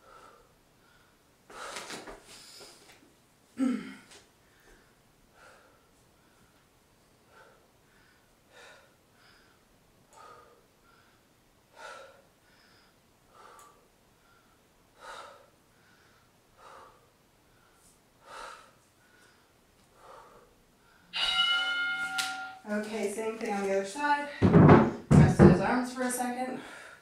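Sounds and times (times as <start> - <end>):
woman breathing from exertion: 0.0 - 2.9, 3.6 - 6.6, 7.2 - 21.2, 26.6 - 27.0.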